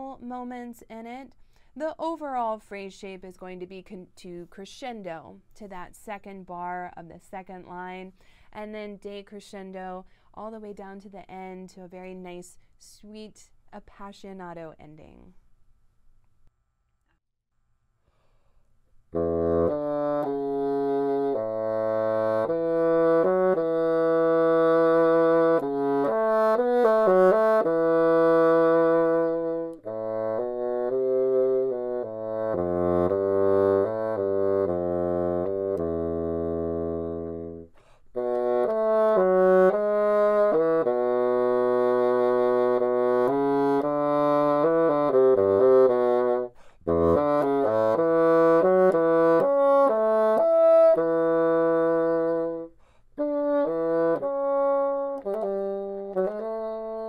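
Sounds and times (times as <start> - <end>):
solo bassoon playing: 19.1 - 57.0.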